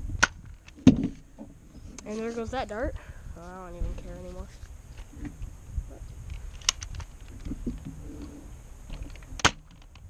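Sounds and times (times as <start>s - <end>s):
sharp plastic clack: 6.3s - 7.1s.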